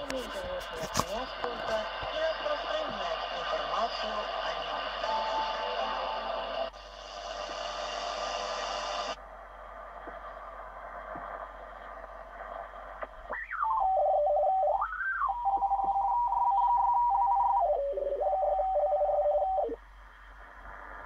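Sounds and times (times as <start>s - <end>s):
radio band hiss: 0.0s - 21.0s
radio beat-note whistle: 13.3s - 19.8s.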